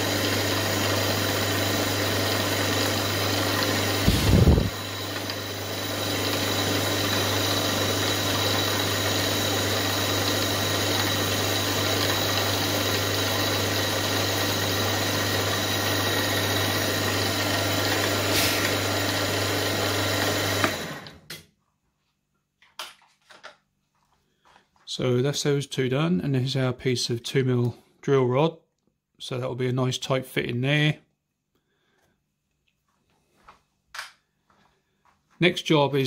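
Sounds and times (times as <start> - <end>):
milling machine spindle running: 0.0 - 21.2.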